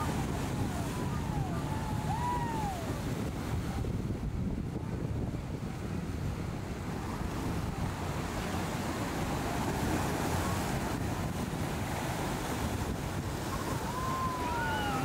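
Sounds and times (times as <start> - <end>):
boat hull rushing through water: 0.0 - 15.0
waves and surf: 0.0 - 15.0
wind buffeting microphone: 0.0 - 15.0.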